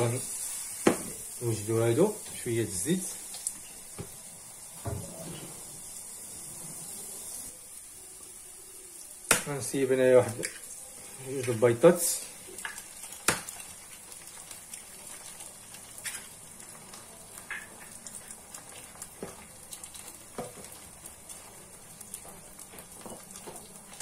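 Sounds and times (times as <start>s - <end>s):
oil popping and crackling: 0.0s - 4.2s, 9.0s - 24.0s
eggs sizzling in a pan: 0.0s - 24.0s.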